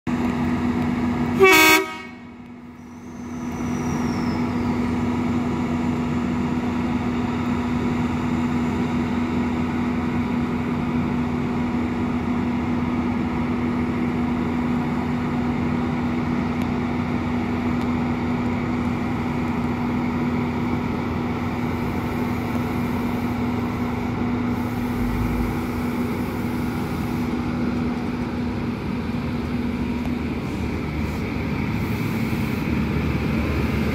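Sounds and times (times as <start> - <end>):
diesel engines running: 0.1 - 33.9
train horn blast: 1.4 - 2.3.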